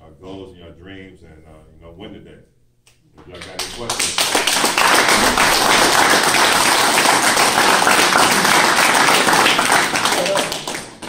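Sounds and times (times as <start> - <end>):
people applauding: 3.2 - 11.0.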